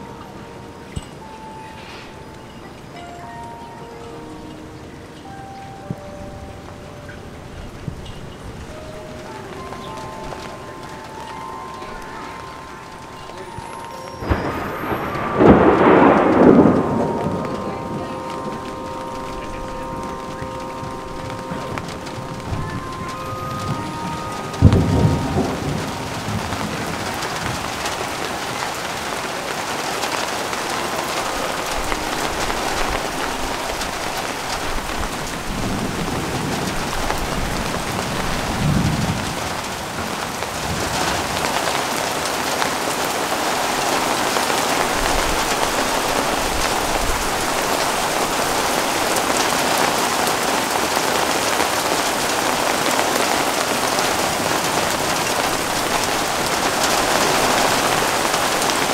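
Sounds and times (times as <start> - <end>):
heavy rain falling: 0.0 - 58.9
low rumbles of thunder: 14.2 - 43.3.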